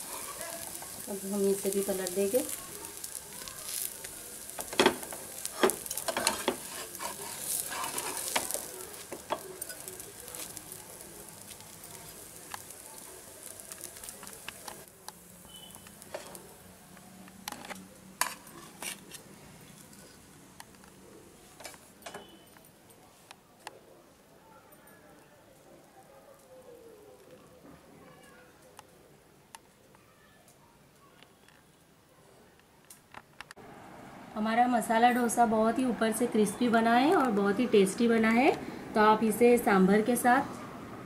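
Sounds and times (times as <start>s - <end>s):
steel spatula scraping a pan: 0.0s - 1.2s, 2.4s - 10.6s, 18.2s - 20.3s
oil sizzling on a pan: 0.0s - 20.6s.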